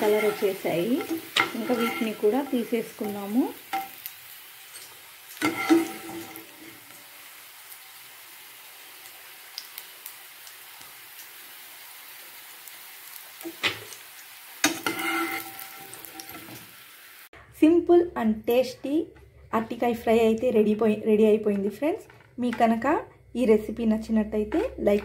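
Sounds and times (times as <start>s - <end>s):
metal spoon scraping pan: 0.0s - 4.0s, 4.7s - 6.7s, 14.6s - 16.6s, 21.6s - 23.3s
frying sizzle: 0.0s - 17.3s, 18.6s - 25.0s.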